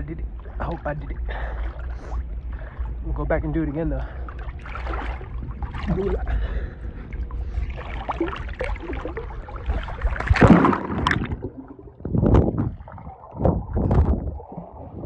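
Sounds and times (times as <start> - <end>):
muffled underwater sound: 0.0 - 15.0
pool water sloshing: 0.0 - 15.0
loud splash: 4.6 - 6.5, 7.5 - 11.8.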